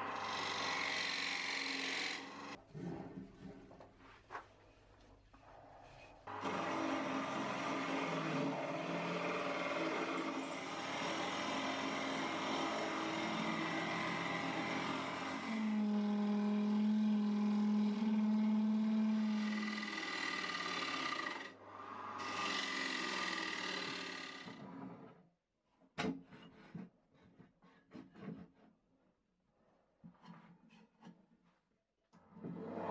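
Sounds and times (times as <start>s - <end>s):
wood lathe humming: 0.0s - 2.6s, 6.4s - 21.5s, 22.2s - 24.6s
gouge scraping spinning wood: 0.1s - 2.6s, 6.5s - 21.5s.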